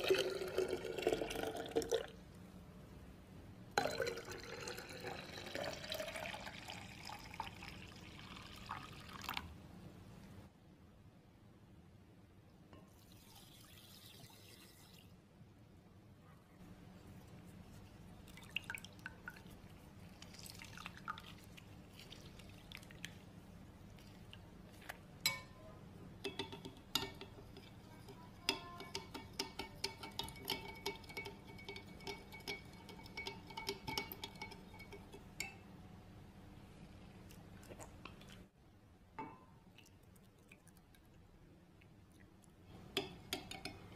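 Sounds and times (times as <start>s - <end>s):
metal spoon clinking in glass jug: 26.2s - 35.6s.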